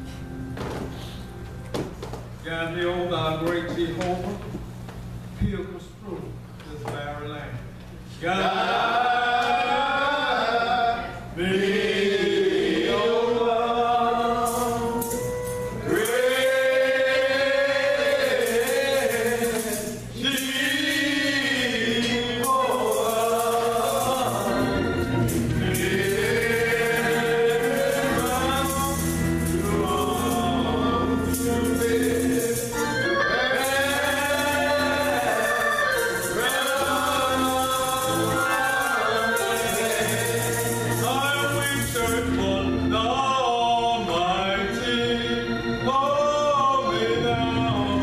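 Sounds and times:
voices singing gospel song: 0:08.2 - 0:48.0
low accompanying notes: 0:08.4 - 0:48.0.

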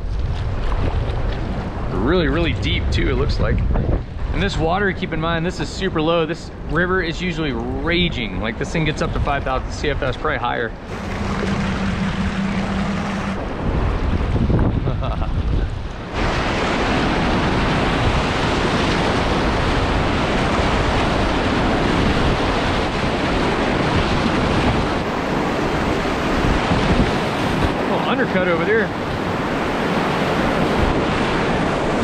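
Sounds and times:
calm river water: 0:00.0 - 0:03.1, 0:03.7 - 0:32.0
wind buffeting microphone: 0:00.0 - 0:32.0
steady low hum: 0:10.6 - 0:16.2
whitewater rapid rushing: 0:10.9 - 0:13.5.

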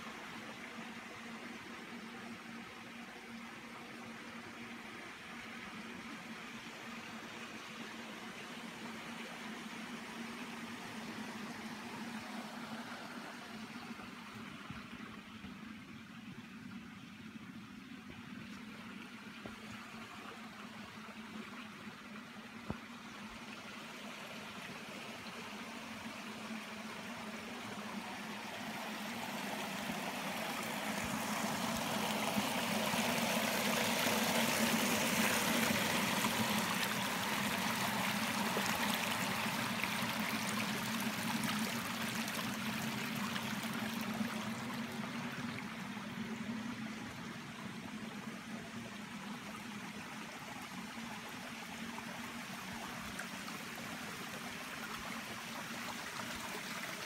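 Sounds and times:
stream splashing over rocks: 0:23.7 - 0:57.0.

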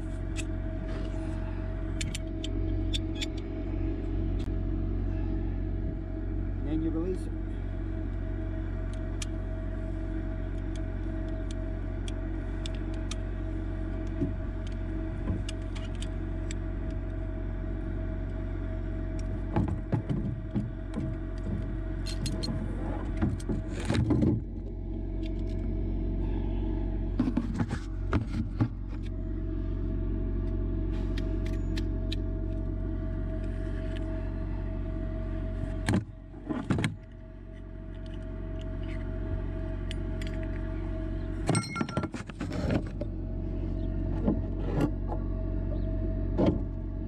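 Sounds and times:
truck engine running: 0:00.0 - 0:47.0
metal clicks and clanks: 0:20.9 - 0:24.2
rattling clanks: 0:41.4 - 0:43.1.

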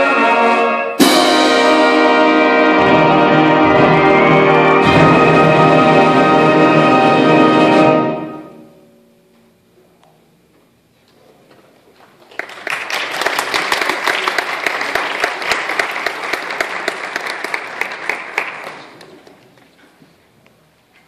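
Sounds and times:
audience applauding: 0:12.1 - 0:19.6.

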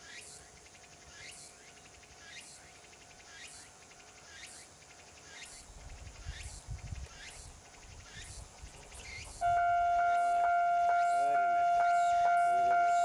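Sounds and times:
insects trilling: 0:00.0 - 0:13.0
diesel railcar rumbling: 0:09.3 - 0:13.0
loud steady tone: 0:09.4 - 0:13.0.

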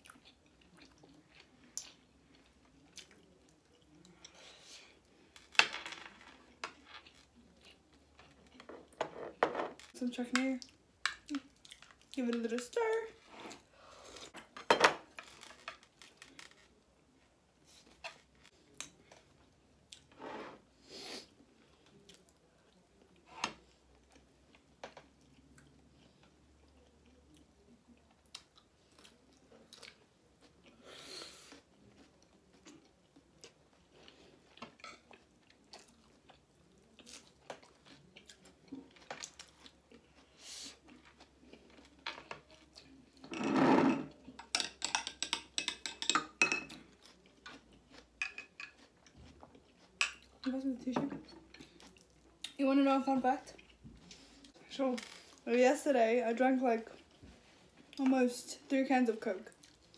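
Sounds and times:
close-up chewing: 0:31.4 - 0:43.2, 0:46.7 - 0:50.4, 0:51.4 - 0:52.6
cutlery clicking on plates: 0:44.4 - 0:46.8.

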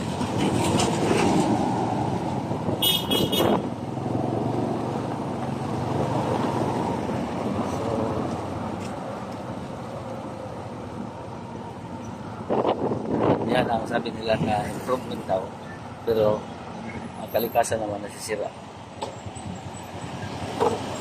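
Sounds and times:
street traffic: 0:00.0 - 0:21.0
short horn toot: 0:02.8 - 0:03.6
motor vehicle running nearby: 0:03.8 - 0:09.5.

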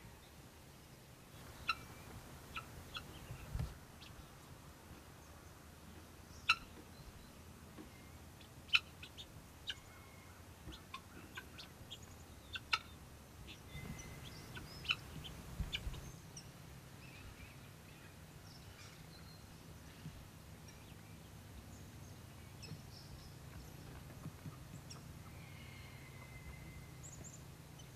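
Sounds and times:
guinea fowl calling: 0:01.4 - 0:04.1, 0:06.4 - 0:06.8, 0:08.4 - 0:16.0, 0:24.9 - 0:27.9.

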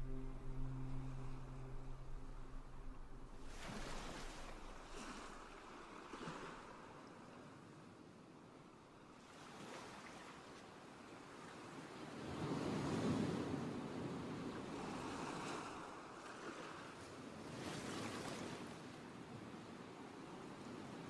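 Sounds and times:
waves washing in: 0:00.0 - 0:07.6.

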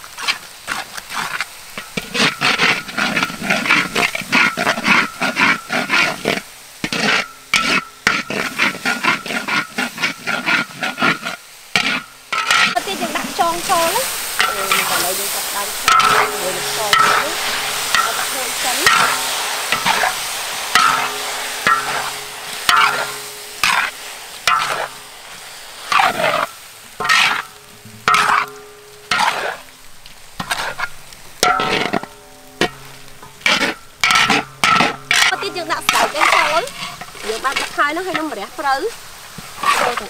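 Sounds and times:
metal spatula scraping a wok: 0:00.0 - 0:40.0
paste sizzling in a wok: 0:00.0 - 0:40.0
wok ringing: 0:07.0 - 0:08.4, 0:11.9 - 0:40.0.

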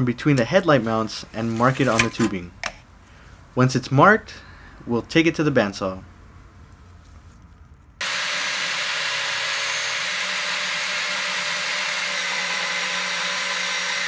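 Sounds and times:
bandsaw cutting steel tubing: 0:01.6 - 0:02.3, 0:08.0 - 0:14.0.

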